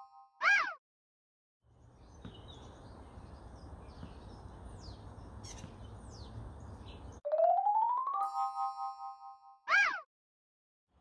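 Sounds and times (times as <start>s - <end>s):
birds chirping: 1.7s - 7.2s.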